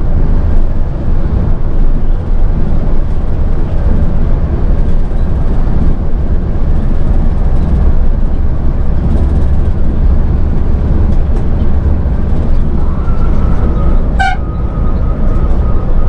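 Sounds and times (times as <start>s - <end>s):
bus engine and tyres rumbling: 0.0s - 16.0s
vehicle horn toot: 13.0s - 14.7s.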